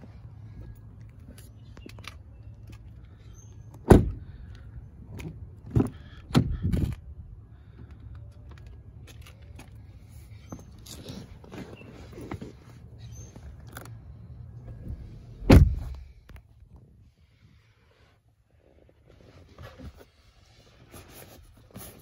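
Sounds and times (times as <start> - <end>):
car door thump: 3.8 - 4.2, 15.4 - 16.0.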